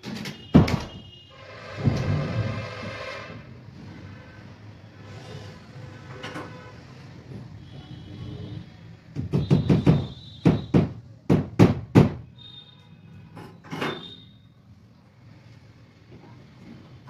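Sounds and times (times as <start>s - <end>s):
hammer knocking on metal plate: 9.2s - 12.2s.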